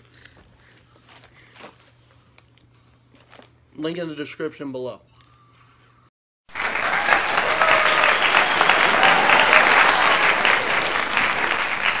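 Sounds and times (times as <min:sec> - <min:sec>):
crowd clapping: 0:06.5 - 0:12.0.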